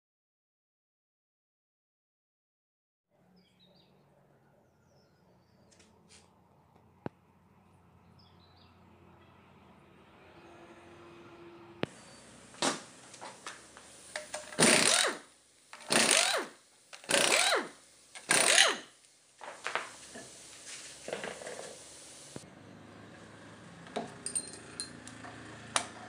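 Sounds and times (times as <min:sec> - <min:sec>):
impact wrench hammering: 0:14.2 - 0:18.9.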